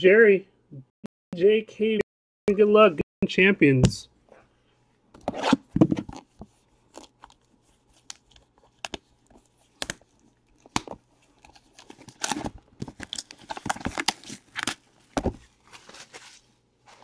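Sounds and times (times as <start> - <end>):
plastic shrink-wrap crinkling and tearing: 9.9 - 16.4.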